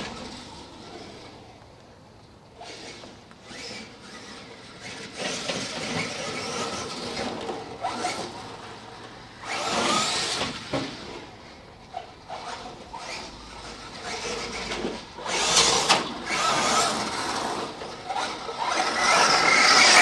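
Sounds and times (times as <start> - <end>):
rc truck motor whine: 0.0 - 20.0.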